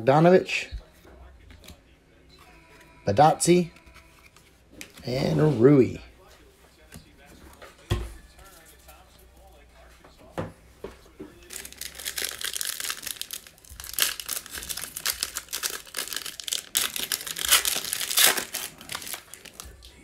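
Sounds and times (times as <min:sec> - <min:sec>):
shiny wrapper crinkling and tearing: 0:11.4 - 0:19.9.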